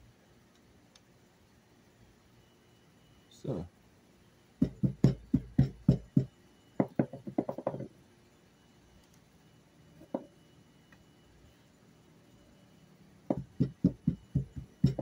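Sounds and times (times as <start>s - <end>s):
knocks on wooden tabletop: 4.6s - 7.9s, 10.0s - 10.3s, 13.3s - 15.0s.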